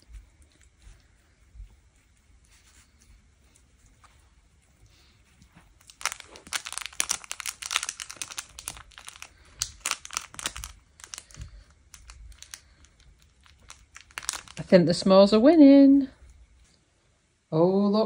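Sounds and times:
dog toy crinkling: 5.5 - 14.8.

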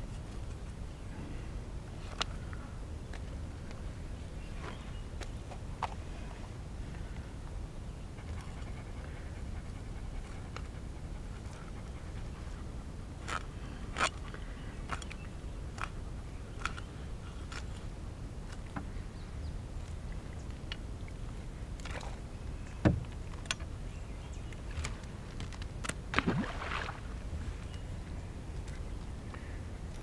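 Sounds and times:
paddle knocking on canoe hull: 22.8 - 23.1.

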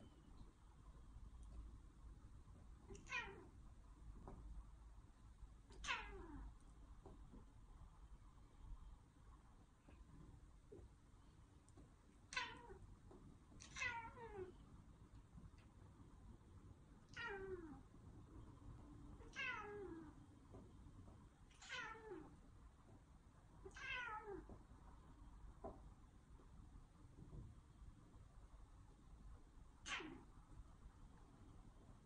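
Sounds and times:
cat meowing: 2.9 - 3.5, 5.7 - 6.5, 12.3 - 12.8, 13.6 - 14.6, 17.1 - 17.8, 19.2 - 20.2, 21.5 - 22.3, 23.6 - 24.5, 29.8 - 30.3.

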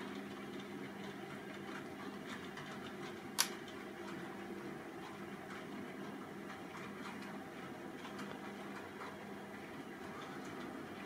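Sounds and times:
sharp click: 3.4 - 3.6.

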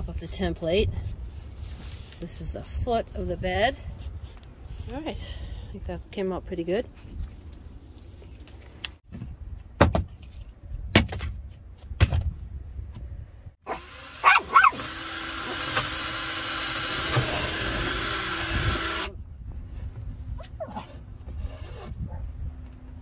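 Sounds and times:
dog barking: 13.7 - 14.8
cordless drill boring through wood: 13.7 - 19.2.

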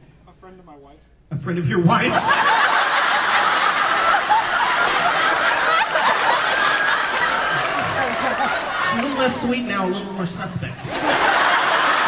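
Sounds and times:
audience laughing: 2.0 - 10.0, 10.8 - 12.0.

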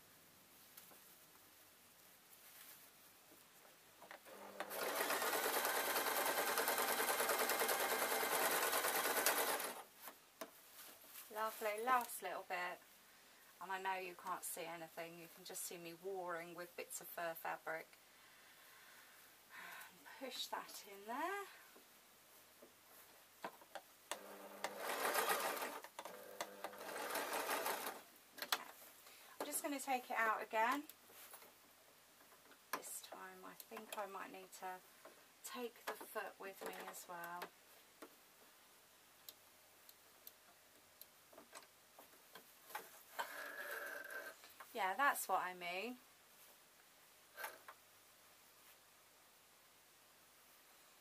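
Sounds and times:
electric sewing machine stitching: 4.3 - 9.8, 24.1 - 28.0.

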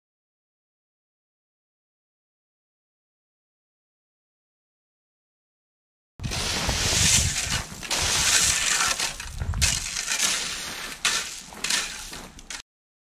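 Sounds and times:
rake scraping gravel: 6.2 - 12.6.

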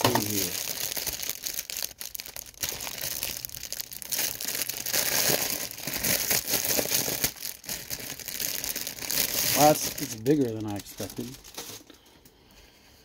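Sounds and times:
plastic bag crinkling: 0.0 - 12.1.

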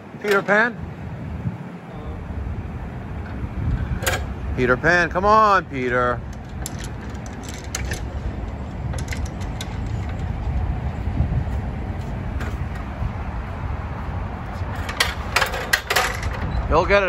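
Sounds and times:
ladder knocks and clicks: 6.2 - 10.4, 14.7 - 16.5.

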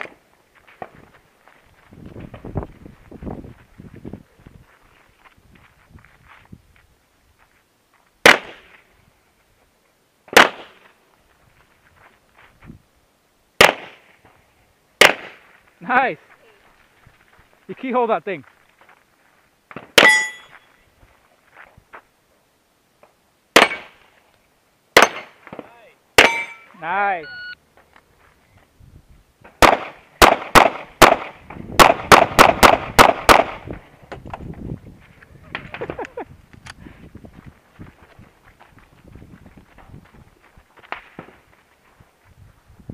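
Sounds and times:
handgun shots with echo: 23.6 - 23.9, 26.2 - 26.6, 29.6 - 33.6.

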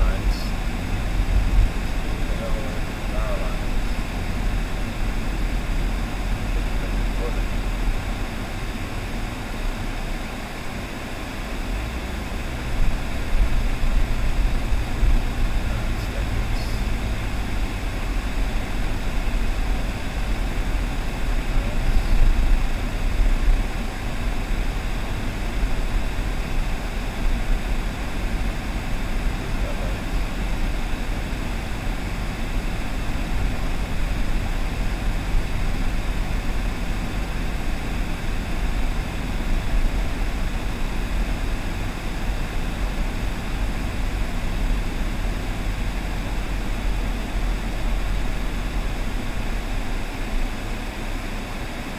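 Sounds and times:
car road and engine noise: 0.0 - 51.9.

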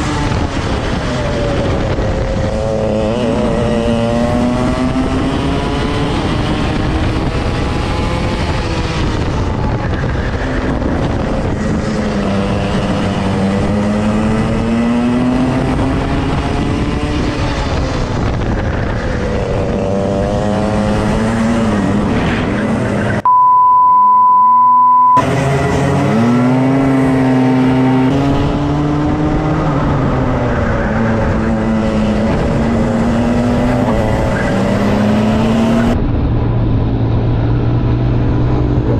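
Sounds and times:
kart engines racing: 0.0 - 23.2, 25.2 - 38.9
steady high beep: 23.2 - 25.2.

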